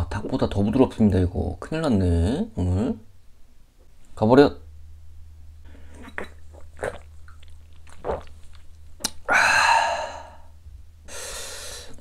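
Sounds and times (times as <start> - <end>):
person swallowing: 5.8 - 10.5.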